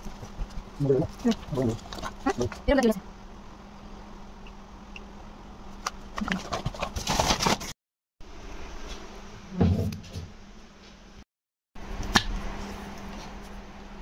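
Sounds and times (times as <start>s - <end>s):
rustling and handling noises: 0.0s - 3.0s, 5.8s - 7.8s.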